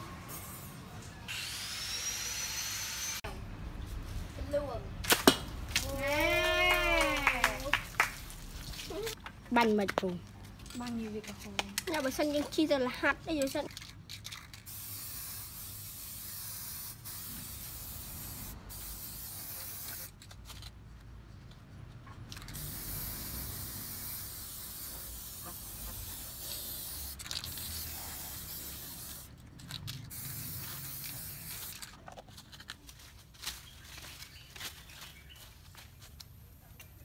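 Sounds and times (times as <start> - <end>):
spray paint can hissing: 14.1 - 20.3, 22.3 - 31.9.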